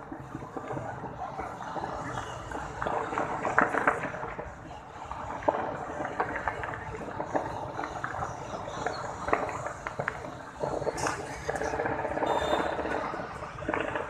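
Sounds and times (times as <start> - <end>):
fireworks cracking and banging: 0.0 - 14.0
steady rumble and hiss: 0.0 - 14.0.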